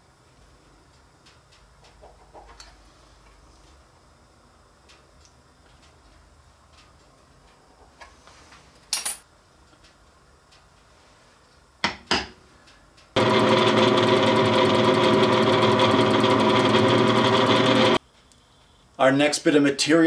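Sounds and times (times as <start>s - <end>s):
drill press running: 13.2s - 18.0s.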